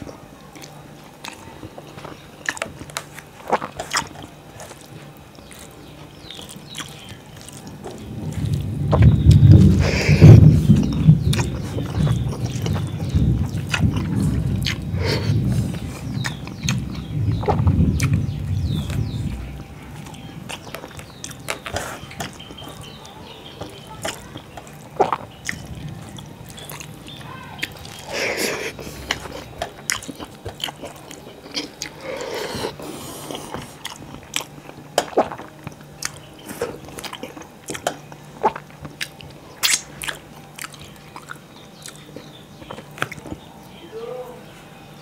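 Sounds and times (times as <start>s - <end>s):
fingers squishing rice: 0.0s - 43.5s
man chewing: 0.0s - 43.7s
wet mouth clicks and smacks: 2.4s - 4.9s, 36.9s - 43.4s.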